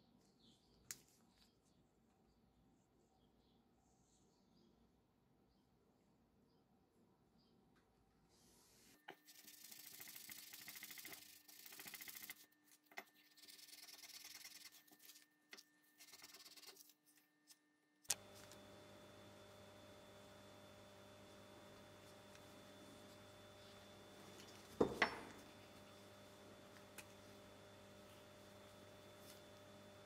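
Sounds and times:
gloved hands rubbing paper towel: 0:09.2 - 0:17.2, 0:21.2 - 0:30.0
steady low hum: 0:18.1 - 0:30.0.

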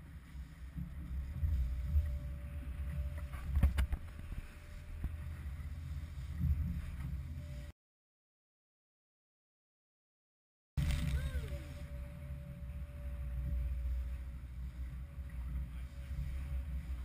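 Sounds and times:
wind buffeting microphone: 0:00.0 - 0:07.6
boat hull pounding through waves: 0:00.0 - 0:07.7.

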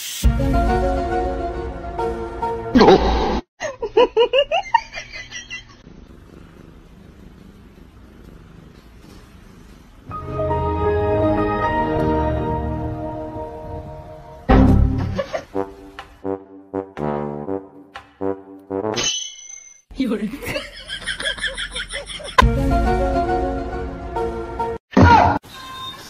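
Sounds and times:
cat purring: 0:05.8 - 0:10.7
trombone-like brass music: 0:10.1 - 0:19.0.

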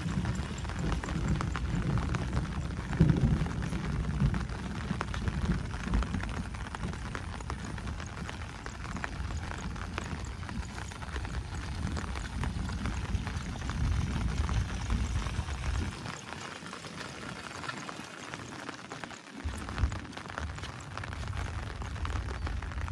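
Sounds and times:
wind rumble on microphone: 0:00.0 - 0:17.5, 0:19.4 - 0:22.9
footsteps walking: 0:00.0 - 0:22.9
heavy rain falling: 0:00.0 - 0:22.9.

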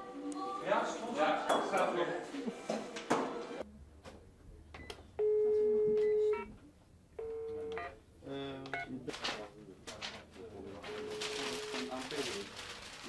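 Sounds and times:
electronic telephone beep: 0:04.8 - 0:06.5.

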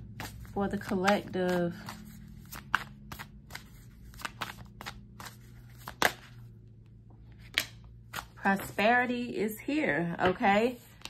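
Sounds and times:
cards shuffling with clicks and snaps: 0:00.0 - 0:06.5, 0:07.3 - 0:08.9, 0:10.2 - 0:11.0.

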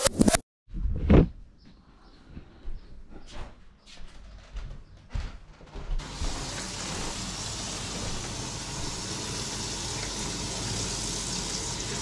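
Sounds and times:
pot boiling: 0:06.0 - 0:12.0.

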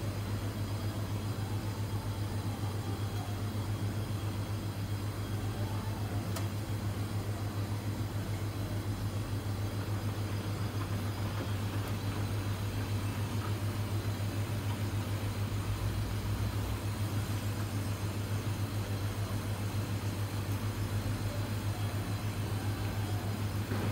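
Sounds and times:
low machine hum: 0:00.0 - 0:23.9.

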